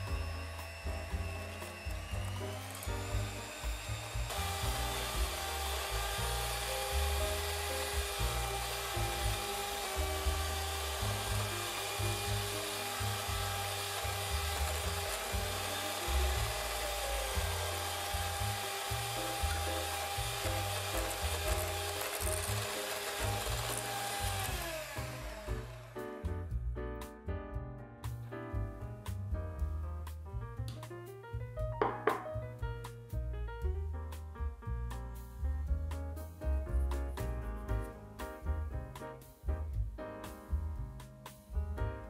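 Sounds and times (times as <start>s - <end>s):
electric hand mixer whisking: 0.0s - 26.0s.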